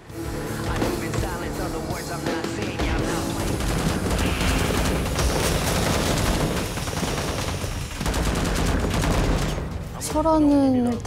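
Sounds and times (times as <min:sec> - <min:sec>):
rifles firing rapidly: 0:02.9 - 0:10.7.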